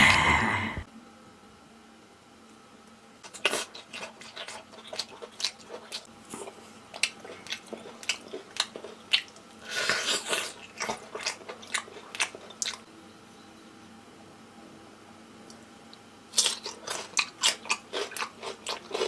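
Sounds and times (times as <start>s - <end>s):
wet chewing clicks and smacks: 3.2s - 9.6s, 10.3s - 12.9s, 15.5s - 19.0s.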